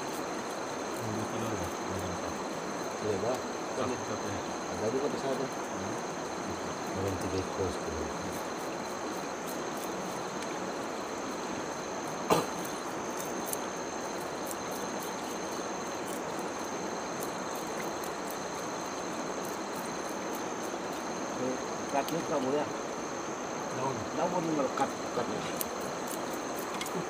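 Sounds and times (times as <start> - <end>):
insects whining: 0.0 - 27.0.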